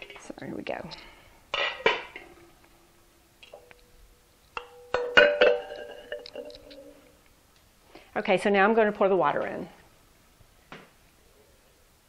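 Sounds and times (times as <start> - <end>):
glass jars clinking: 4.6 - 7.1.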